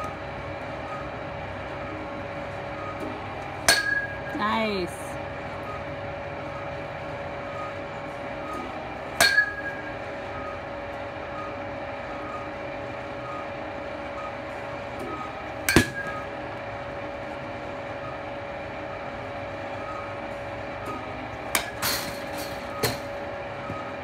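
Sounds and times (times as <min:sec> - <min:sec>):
steady mechanical hum: 0:00.0 - 0:24.0
metal bat hitting ball: 0:03.6 - 0:04.3, 0:09.2 - 0:09.9, 0:15.7 - 0:16.2, 0:21.5 - 0:23.1.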